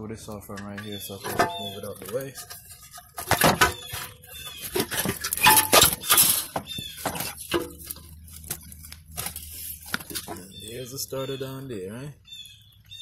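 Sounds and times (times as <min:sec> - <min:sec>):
tools and metal parts clinking: 0:00.5 - 0:10.5
bird chirps: 0:00.6 - 0:02.2, 0:03.6 - 0:07.4, 0:10.3 - 0:13.0.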